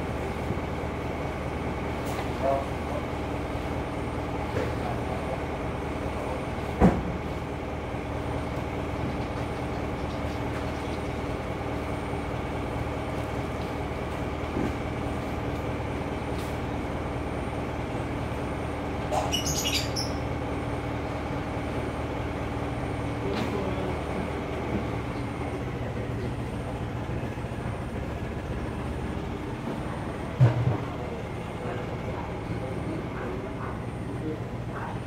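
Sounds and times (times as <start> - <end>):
steady mechanical hum: 0.0 - 35.0
high-pitched chirping: 19.2 - 20.2.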